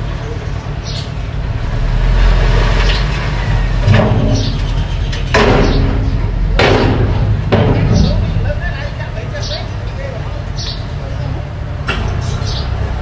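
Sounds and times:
bulldozer diesel engine rumbling: 0:00.0 - 0:13.0
bulldozer track and blade noise: 0:00.0 - 0:13.0.

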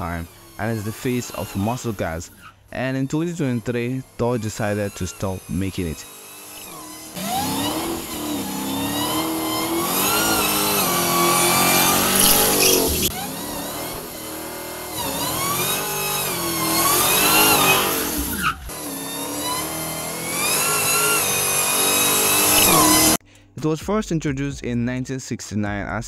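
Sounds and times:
car engine revving: 0:00.0 - 0:23.2.

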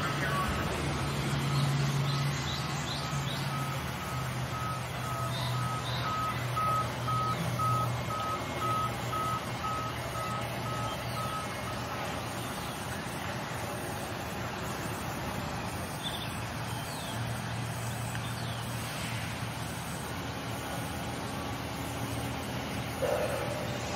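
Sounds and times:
high electronic beeps: 0:01.4 - 0:11.8.

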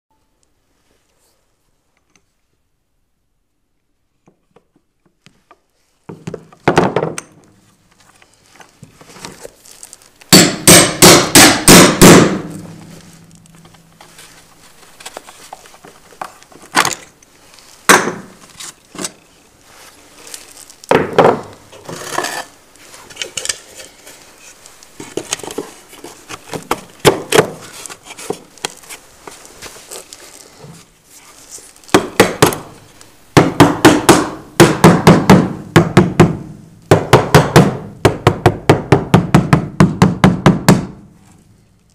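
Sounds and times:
hammer striking chisel: 0:10.3 - 0:12.7, 0:33.4 - 0:41.0.

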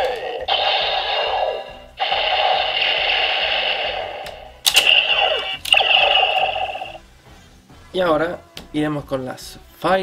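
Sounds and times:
toy electronic sound effects: 0:00.0 - 0:07.0.

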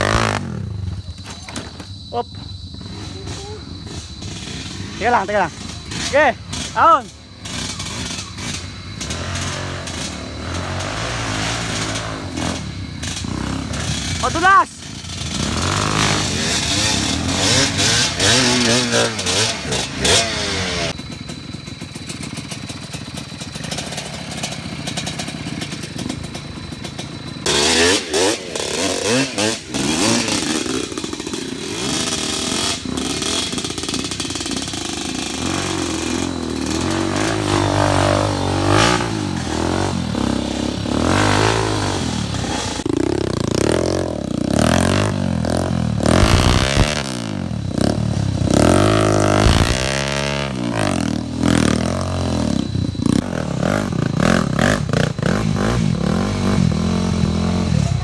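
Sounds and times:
dirt bike engine revving: 0:00.0 - 0:01.0, 0:02.7 - 0:58.0
clatter: 0:29.8 - 0:38.2.

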